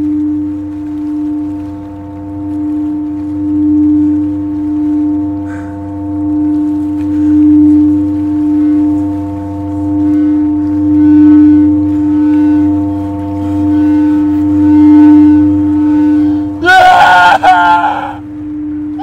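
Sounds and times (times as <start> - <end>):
low droning tone: 0.0 - 19.0
man screaming: 16.6 - 18.2.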